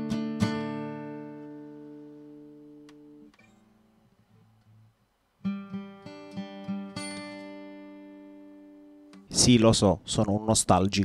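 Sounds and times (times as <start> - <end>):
acoustic guitar chord ringing: 0.0 - 4.1, 5.4 - 9.4.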